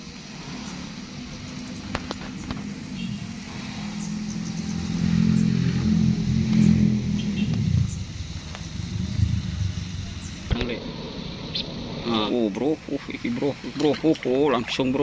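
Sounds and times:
vehicle engine running: 0:00.0 - 0:14.3.

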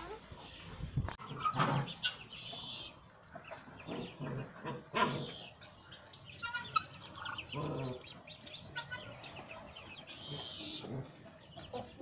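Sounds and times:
puppies growling: 0:07.3 - 0:08.2, 0:10.4 - 0:11.4.

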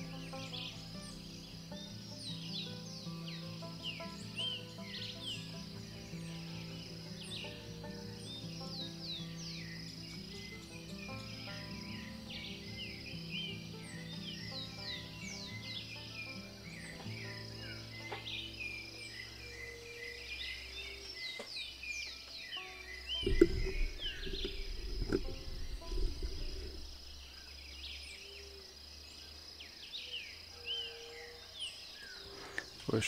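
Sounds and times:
birds chirping: 0:00.0 - 0:33.0
insect drone: 0:00.0 - 0:33.0
scraping and knocking: 0:23.2 - 0:27.0.

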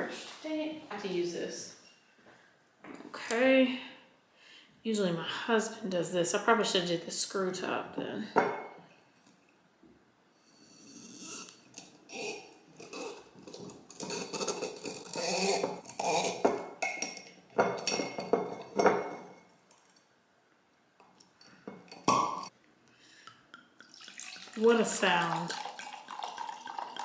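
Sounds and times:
corkscrew scraping and squeaking: 0:10.7 - 0:16.5.

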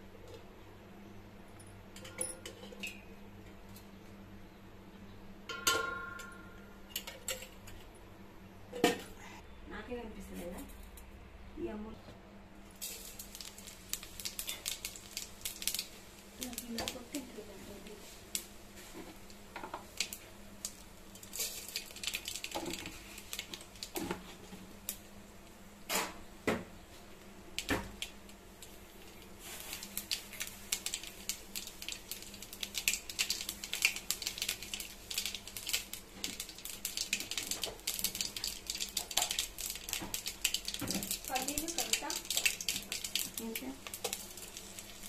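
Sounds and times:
hot oil crackling and spitting: 0:12.6 - 0:45.0
seeds popping: 0:12.8 - 0:18.5, 0:27.6 - 0:45.0.

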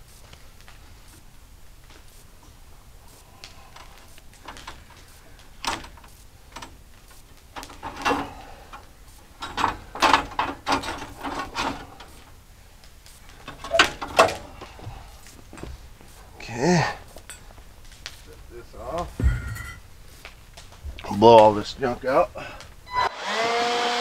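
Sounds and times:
metal clanks and rattles: 0:07.6 - 0:08.8, 0:09.4 - 0:12.3, 0:13.4 - 0:14.8, 0:19.1 - 0:19.9.

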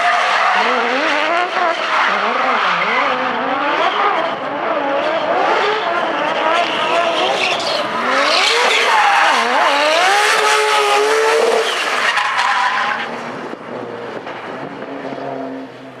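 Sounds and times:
car engine revving hard: 0:00.6 - 0:11.7.

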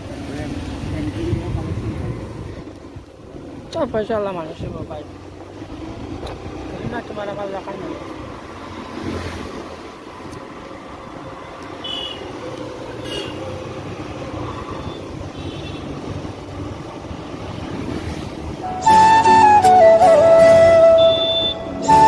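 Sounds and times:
motorcycle engine and road noise: 0:00.0 - 0:22.0
short high-pitched tones: 0:20.9 - 0:22.0.

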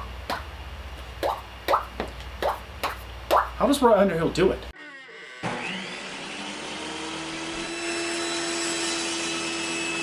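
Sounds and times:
circular saw motor whirring: 0:04.8 - 0:10.0.

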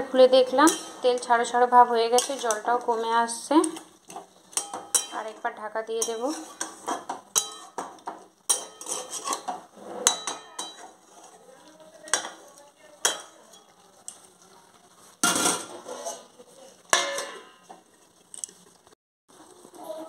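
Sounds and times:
metal spatula scraping pan: 0:00.2 - 0:14.2, 0:15.2 - 0:18.1
metal lids and pots clattering: 0:00.4 - 0:11.4, 0:12.1 - 0:12.4, 0:13.0 - 0:13.8, 0:15.2 - 0:17.8.

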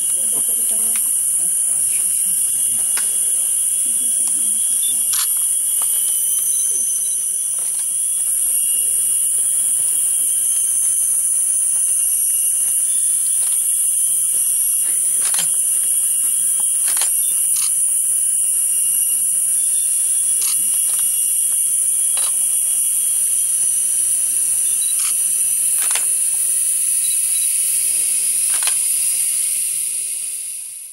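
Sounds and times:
faint insect trills: 0:00.0 - 0:30.9
high-pitched insect drone: 0:00.0 - 0:30.9
sharp clicks: 0:15.0 - 0:15.6, 0:16.6 - 0:17.8, 0:20.4 - 0:22.4, 0:24.9 - 0:26.2, 0:28.5 - 0:28.9.

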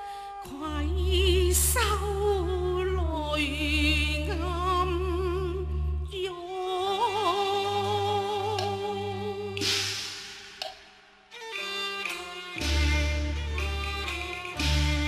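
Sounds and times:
low bass notes: 0:12.6 - 0:15.0.

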